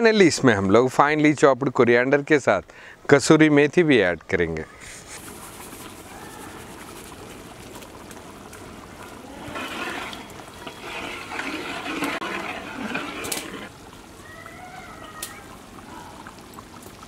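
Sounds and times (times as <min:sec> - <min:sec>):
curry bubbling: 0:05.0 - 0:17.0
gravy sloshing as stirred: 0:05.1 - 0:14.2.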